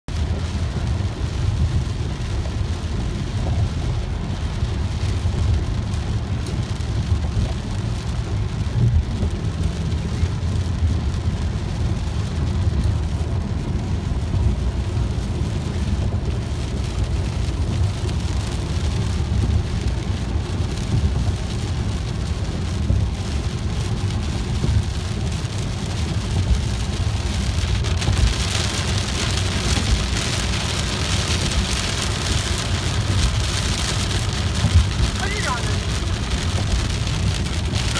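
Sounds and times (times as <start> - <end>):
low road rumble: 0.0 - 37.9
heavy rain on car roof: 0.1 - 37.9.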